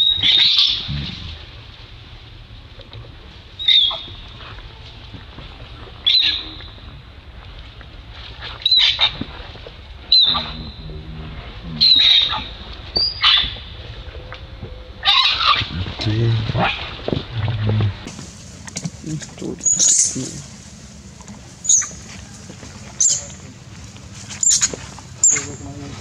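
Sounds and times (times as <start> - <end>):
low steady hum: 0.0 - 26.0
macaques screaming: 11.8 - 13.5, 15.0 - 15.7, 19.4 - 20.6, 21.6 - 23.4.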